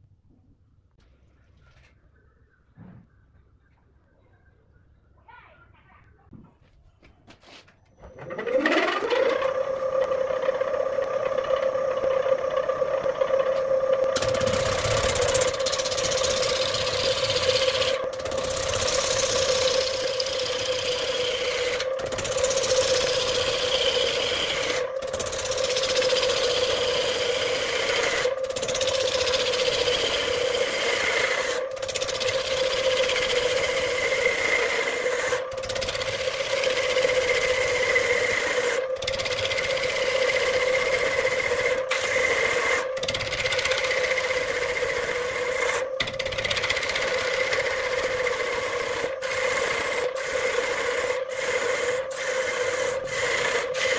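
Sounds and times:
high cutting whine: 0:08.0 - 0:53.9
wood lathe hum: 0:08.0 - 0:53.9
chisel scraping and shaving wood: 0:14.1 - 0:53.9.

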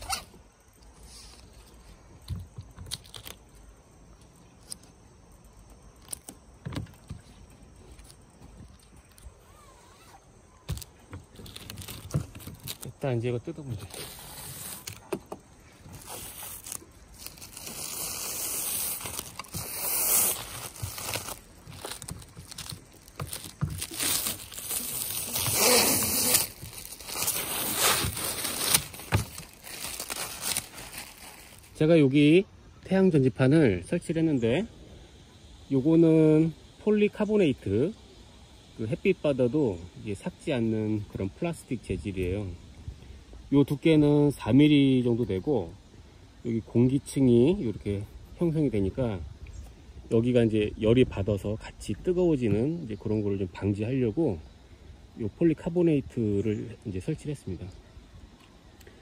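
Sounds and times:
plastic film rustling and crinkling: 0:09.8 - 0:13.1, 0:15.8 - 0:31.8.

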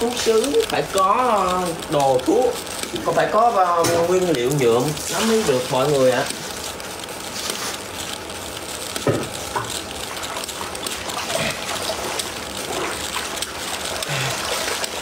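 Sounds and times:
water splashing and trickling: 0:10.2 - 0:15.0.

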